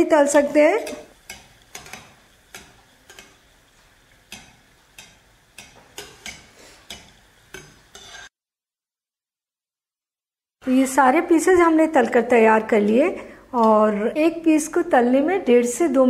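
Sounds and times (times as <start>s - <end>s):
faint frying sizzle: 0.0s - 8.3s, 10.6s - 16.0s
metal skimmer clinking on pan: 0.8s - 3.5s, 4.3s - 8.3s.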